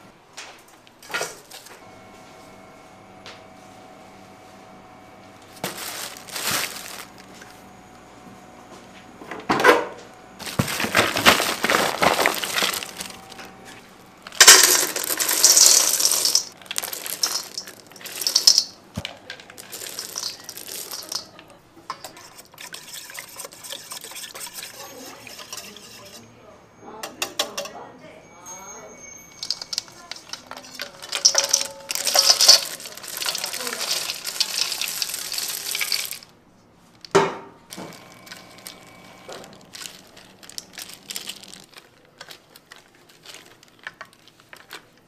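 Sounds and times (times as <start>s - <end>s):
plastic bag rustling: 5.5s - 7.6s, 10.4s - 21.4s, 29.4s - 36.3s, 36.9s - 45.0s
chocolate discs rattling: 10.4s - 13.5s, 14.2s - 26.0s, 29.3s - 36.3s
whisk clinking in a steel bowl: 19.7s - 21.3s, 21.9s - 26.3s, 29.2s - 36.1s.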